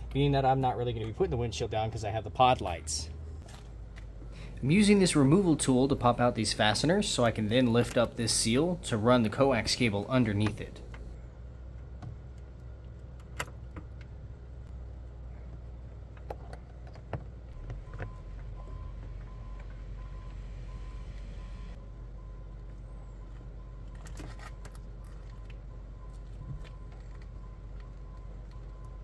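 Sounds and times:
tractor engine droning: 1.0 - 16.5
cable clicks and rustles: 23.4 - 29.0.

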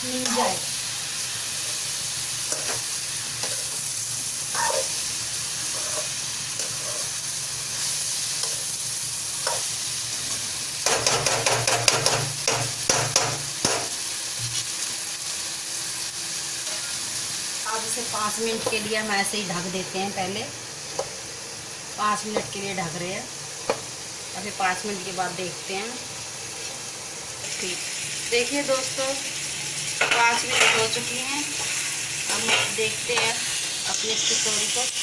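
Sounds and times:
vegetables sizzling in oil: 0.0 - 35.0
ladle scraping a pan: 5.7 - 7.1.

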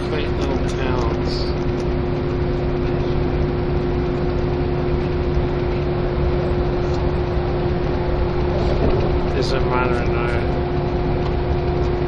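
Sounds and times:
coach engine and road noise: 0.0 - 12.0
steady hum: 0.0 - 12.0.

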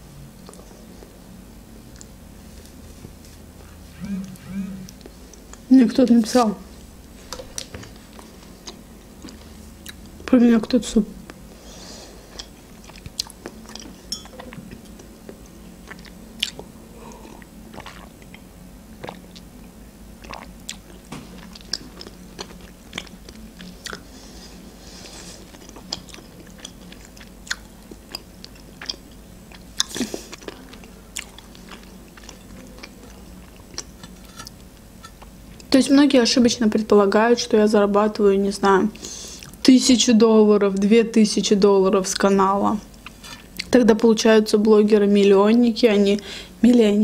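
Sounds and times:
soft chewing: 0.4 - 1.2, 1.9 - 5.7, 7.1 - 10.2, 12.2 - 19.5, 20.2 - 35.8, 42.9 - 43.8.

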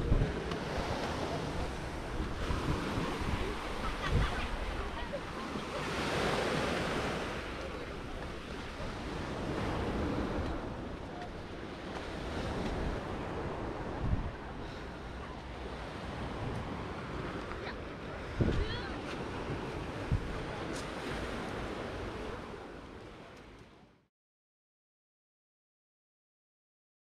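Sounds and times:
wind buffeting microphone: 0.0 - 5.5, 6.2 - 14.7, 18.1 - 20.6.

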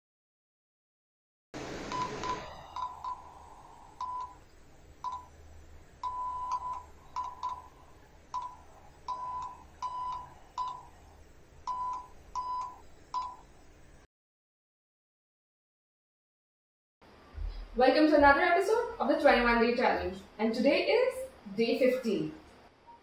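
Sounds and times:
morse code beeps: 1.9 - 3.3, 4.0 - 4.4, 5.0 - 5.3, 6.0 - 10.9, 11.7 - 13.4.

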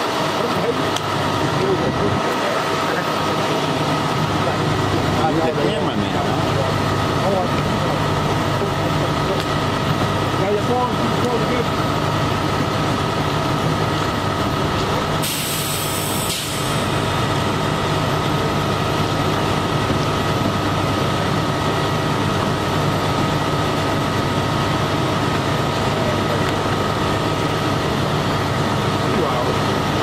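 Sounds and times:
bus engine idling: 0.0 - 30.0
air hiss: 15.2 - 17.0.

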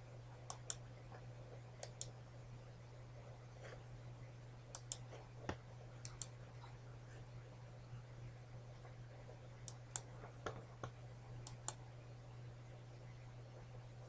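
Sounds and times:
faint low hum: 0.0 - 14.0
computer mouse clicking: 0.5 - 0.8, 1.8 - 2.1, 4.7 - 6.4, 9.6 - 11.8.

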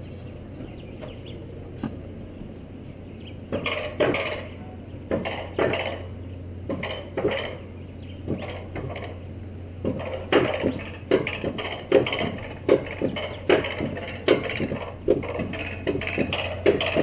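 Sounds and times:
coaster wheels clacking on metal track: 3.6 - 9.2, 9.8 - 17.0.

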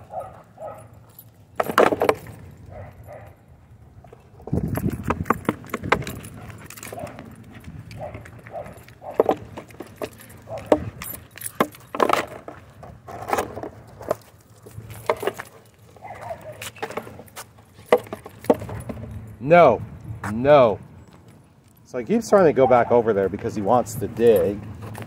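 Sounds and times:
small metal objects jingling: 0.0 - 3.4, 4.4 - 12.9, 13.7 - 19.5, 24.0 - 25.0.

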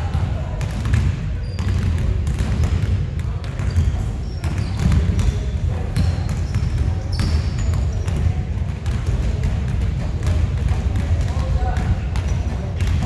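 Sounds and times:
basketballs bouncing on hardwood: 0.1 - 13.0
sneakers squeaking: 0.8 - 8.5.

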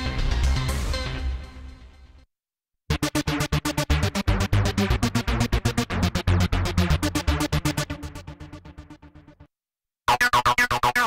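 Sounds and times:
heavy synth bass: 2.9 - 9.5
synthesizer arpeggio staccato notes: 2.9 - 9.5.

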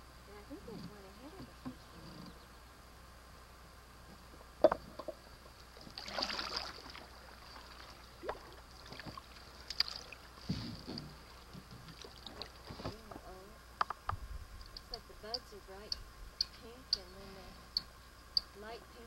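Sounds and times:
faint high whine: 0.0 - 19.0
paddle strokes in water: 5.7 - 13.3.

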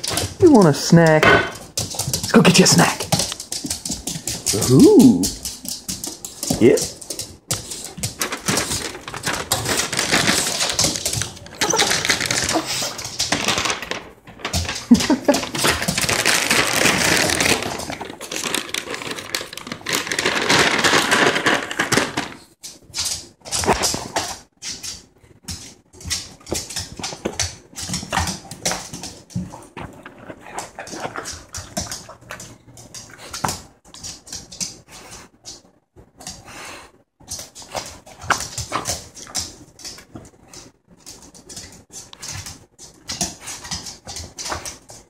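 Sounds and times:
dog claws clicking on floor: 0.0 - 36.6, 37.2 - 45.0
small dog whining: 4.5 - 5.4, 11.6 - 12.9.

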